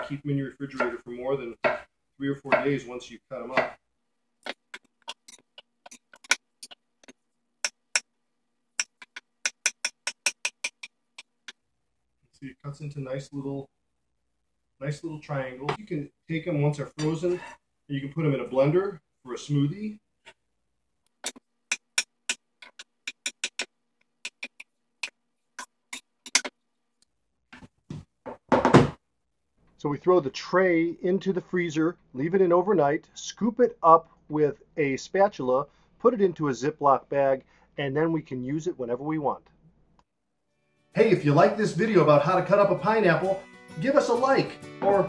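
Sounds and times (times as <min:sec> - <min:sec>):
knife chopping on wooden board: 0:01.6 - 0:01.9, 0:03.5 - 0:03.8.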